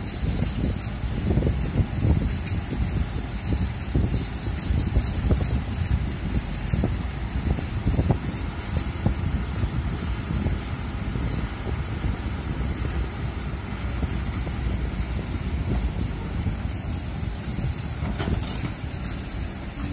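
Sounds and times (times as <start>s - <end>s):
excavator diesel engine running: 0.0s - 19.9s
wind buffeting microphone: 0.0s - 19.9s.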